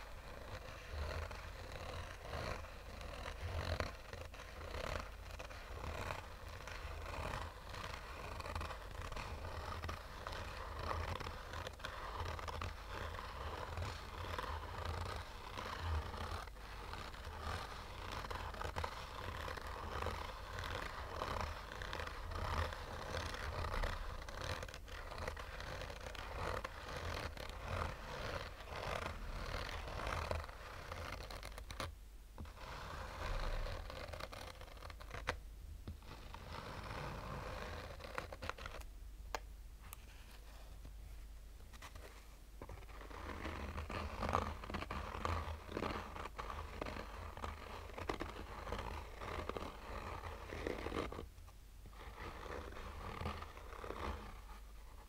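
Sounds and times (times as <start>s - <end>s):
fingernails scratching fabric: 0.0s - 38.9s, 41.7s - 55.0s.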